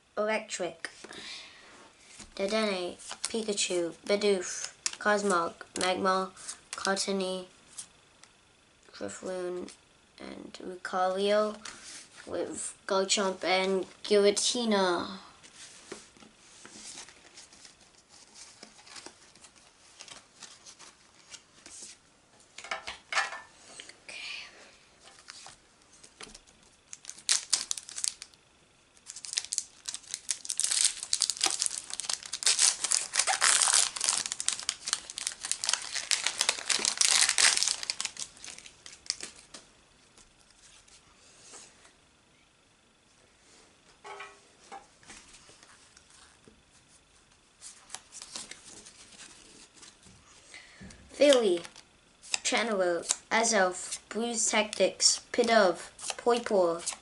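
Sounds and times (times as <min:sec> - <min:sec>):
cards rustling: 0:25.1 - 0:28.3, 0:29.0 - 0:39.6, 0:47.6 - 0:50.0
foil wrapper crinkling and tearing: 0:26.9 - 0:28.4, 0:29.0 - 0:39.6.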